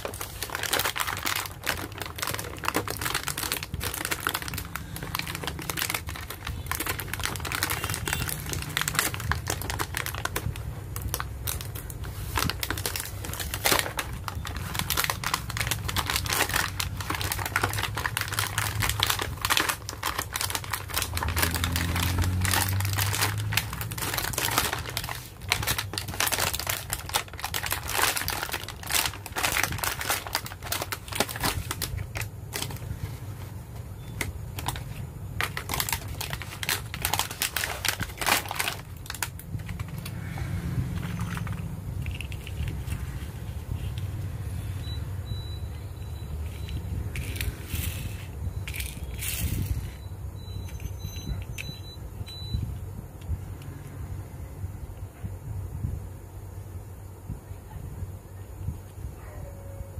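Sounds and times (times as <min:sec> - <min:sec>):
plastic packaging crinkling: 0:00.0 - 0:44.2, 0:46.5 - 0:50.0.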